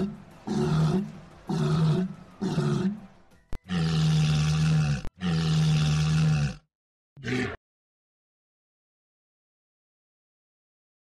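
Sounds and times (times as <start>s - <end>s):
walruses bellowing: 0.0s - 5.4s.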